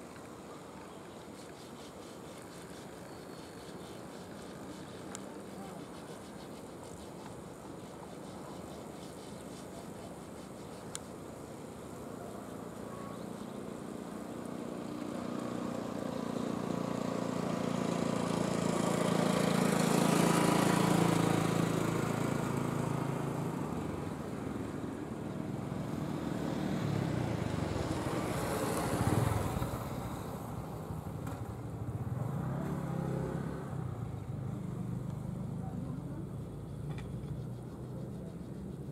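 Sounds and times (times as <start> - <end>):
road vehicles passing by: 10.9 - 38.9.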